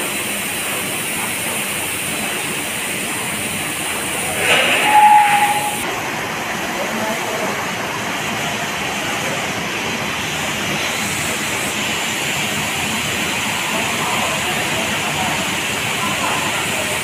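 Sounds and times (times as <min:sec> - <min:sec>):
production line machinery hissing: 0:00.0 - 0:05.9.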